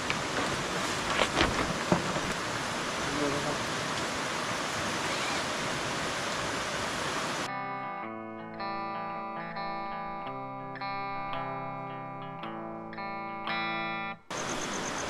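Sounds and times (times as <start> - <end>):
rushing river water: 0.0 - 7.5
slow guitar music: 7.5 - 14.3.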